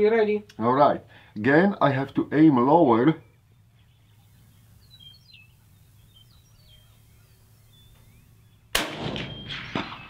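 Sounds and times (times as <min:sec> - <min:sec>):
low steady hum: 0:00.4 - 0:10.0
bird chirps: 0:03.0 - 0:10.0.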